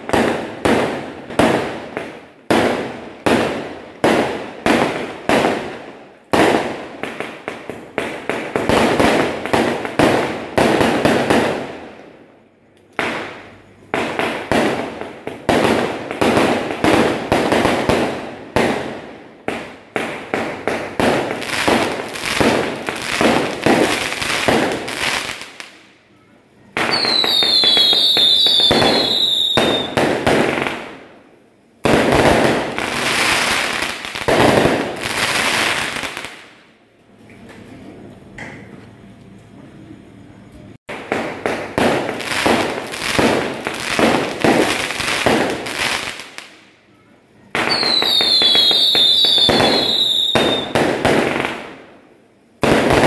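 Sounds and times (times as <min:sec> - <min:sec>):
fireworks bangs: 0:00.0 - 0:12.0, 0:13.0 - 0:25.9, 0:26.7 - 0:31.2, 0:31.8 - 0:36.6, 0:40.8 - 0:46.6, 0:47.5 - 0:52.0, 0:52.6 - 0:53.0
fireworks crackling: 0:00.0 - 0:12.0, 0:12.8 - 0:26.0, 0:26.7 - 0:36.8, 0:40.8 - 0:46.7, 0:47.5 - 0:53.0
whistling fireworks: 0:13.0 - 0:31.1, 0:31.8 - 0:36.5, 0:40.9 - 0:52.0, 0:52.6 - 0:53.0.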